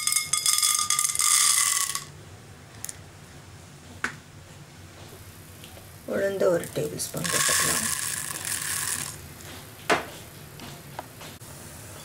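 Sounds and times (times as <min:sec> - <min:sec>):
dry lentils clattering into hot oil: 0:00.0 - 0:02.1, 0:06.6 - 0:09.2.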